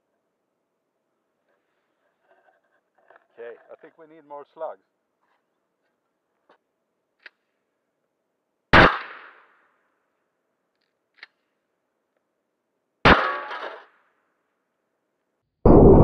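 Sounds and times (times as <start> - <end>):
shotgun shots: 8.7 - 9.5, 13.0 - 13.9.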